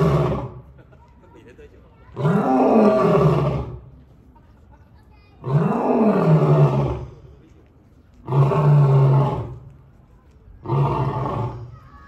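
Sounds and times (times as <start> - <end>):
lion roaring: 2.2 - 3.8, 5.4 - 7.1, 8.2 - 9.6, 10.6 - 11.7.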